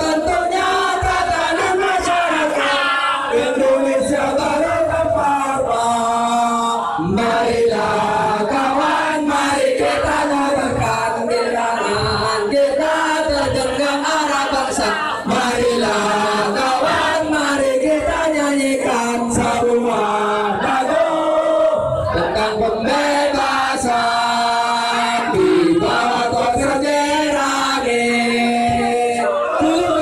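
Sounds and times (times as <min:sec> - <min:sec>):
crowd singing in unison: 0:00.0 - 0:30.0.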